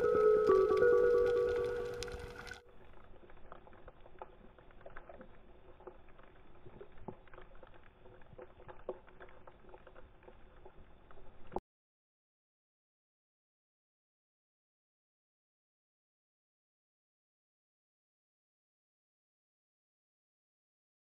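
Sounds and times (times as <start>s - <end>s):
irregular clicks and crackles: 0.0s - 11.6s.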